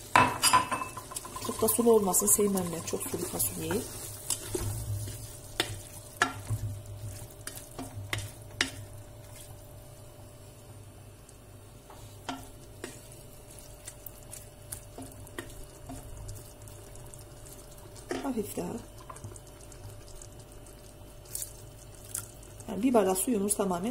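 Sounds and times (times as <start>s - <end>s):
stew frying: 0.0s - 23.9s
wooden spoon scraping a pot: 0.9s - 9.6s.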